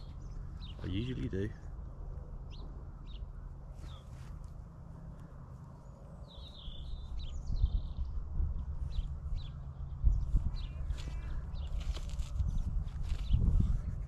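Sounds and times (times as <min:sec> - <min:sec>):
small birds chirping: 0:00.0 - 0:14.0
wind buffeting microphone: 0:06.4 - 0:14.0.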